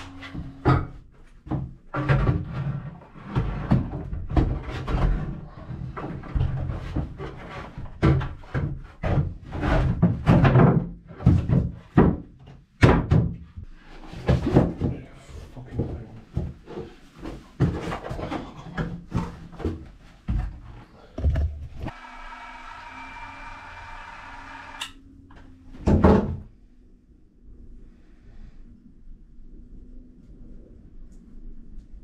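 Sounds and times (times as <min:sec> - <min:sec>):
wooden boards thunking and scraping: 0:00.2 - 0:15.0, 0:16.4 - 0:22.0, 0:25.8 - 0:26.5.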